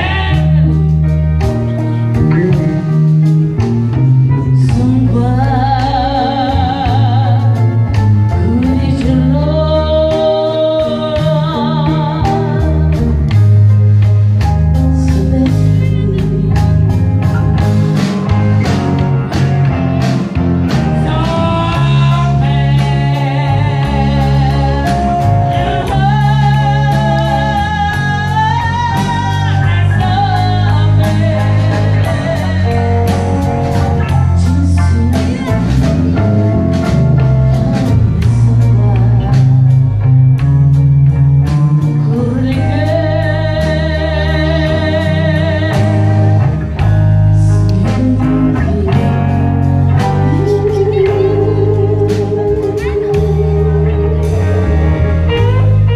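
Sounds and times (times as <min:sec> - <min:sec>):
woman singing with vibrato: 0:00.0 - 0:00.9, 0:04.5 - 0:13.2, 0:21.0 - 0:36.2, 0:41.8 - 0:46.4, 0:47.4 - 0:55.6
blues band playing: 0:00.0 - 0:55.9.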